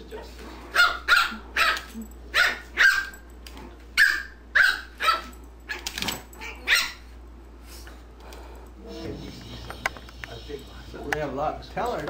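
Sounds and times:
small dog yapping: 0:00.7 - 0:03.2, 0:04.0 - 0:07.1.

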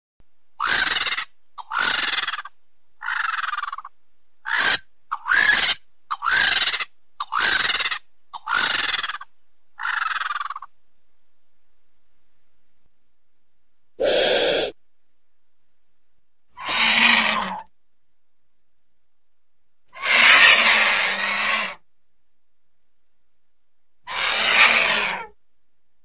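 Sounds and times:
vulture hissing calls: 0:00.6 - 0:03.8, 0:14.0 - 0:14.8, 0:16.6 - 0:17.6, 0:20.0 - 0:21.8, 0:24.1 - 0:25.4.

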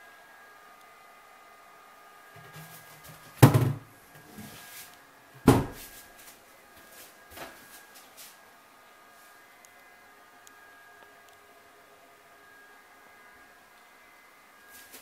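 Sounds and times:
loud knocks with echo: 0:03.4 - 0:03.8.

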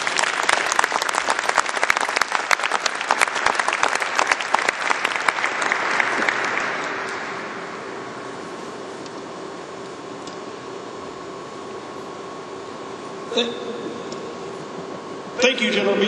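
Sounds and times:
audience applauding: 0:00.0 - 0:08.1
faint background hum: 0:00.0 - 0:16.0.

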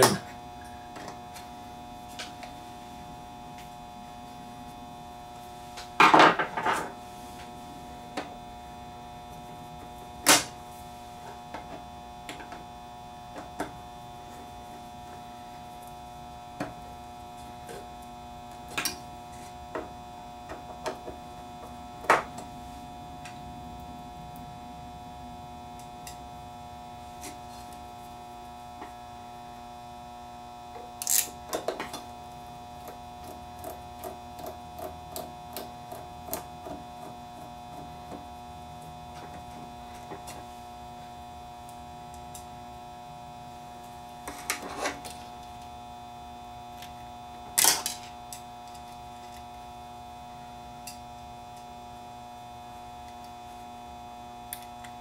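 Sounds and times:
electrical hum: 0:00.0 - 0:55.0.

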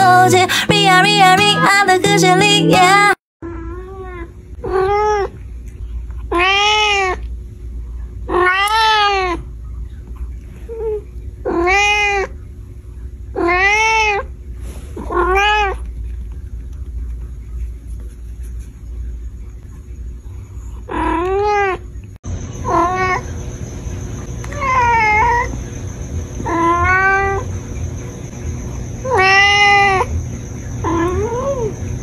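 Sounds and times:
cat meowing: 0:03.4 - 0:05.3, 0:06.3 - 0:07.2, 0:08.3 - 0:09.4, 0:10.7 - 0:12.3, 0:13.4 - 0:14.3, 0:15.0 - 0:15.8, 0:24.5 - 0:25.5, 0:26.5 - 0:27.4, 0:29.1 - 0:30.1, 0:30.8 - 0:31.7.

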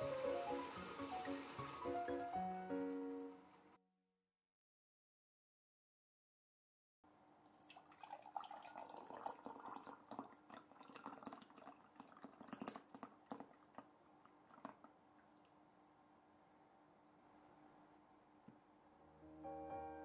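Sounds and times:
fizzing bubbles: 0:00.0 - 0:03.2, 0:07.6 - 0:15.6
syrup pouring into glass jar: 0:07.6 - 0:13.8.

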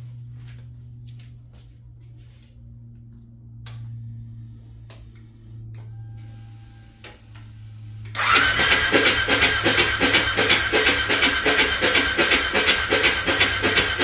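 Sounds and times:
thin high whine: 0:05.4 - 0:08.3
engine cranking on starter: 0:08.1 - 0:14.0.

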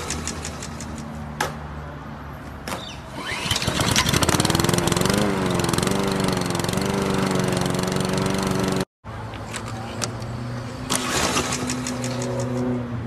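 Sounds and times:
lawn mower engine running: 0:03.1 - 0:08.9, 0:10.9 - 0:12.6.

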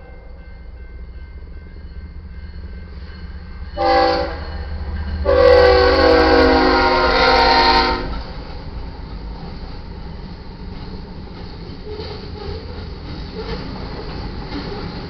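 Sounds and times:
locomotive air horn blasts: 0:03.8 - 0:04.5, 0:05.2 - 0:08.2.

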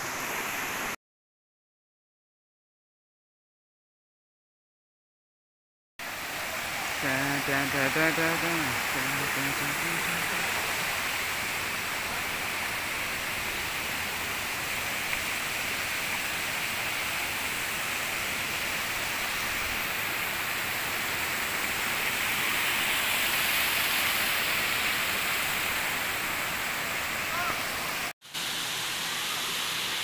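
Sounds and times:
waterfall rushing: 0:06.0 - 0:30.0.

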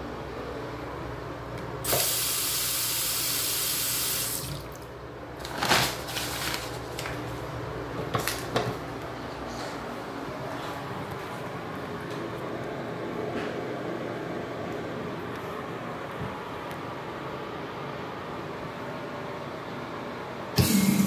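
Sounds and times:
faucet water running into basin: 0:01.9 - 0:04.9.

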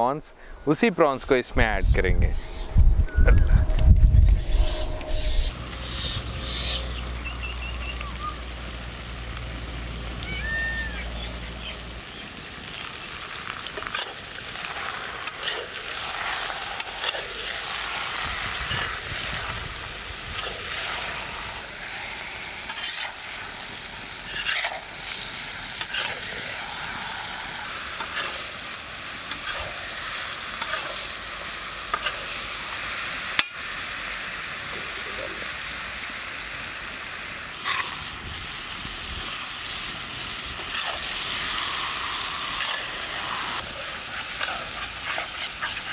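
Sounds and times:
prawns sizzling in a pan: 0:05.4 - 0:45.9
metal spatula scraping a pan: 0:21.8 - 0:23.5, 0:24.2 - 0:26.7, 0:27.9 - 0:28.6, 0:30.5 - 0:31.1, 0:31.9 - 0:32.3, 0:40.6 - 0:43.6.

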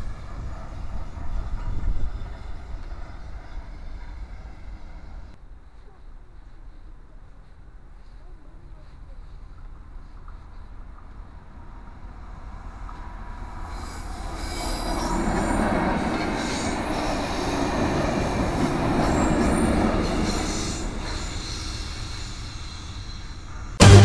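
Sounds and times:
freight train passing: 0:00.0 - 0:05.4, 0:08.8 - 0:24.0
train wheels on rails: 0:00.0 - 0:23.9
music: 0:23.8 - 0:24.0.

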